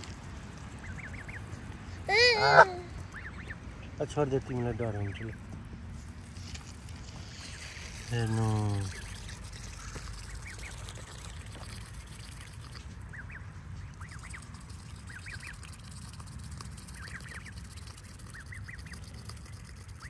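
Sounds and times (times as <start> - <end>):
waterfowl calling softly: 0.7 - 4.1, 8.8 - 20.0.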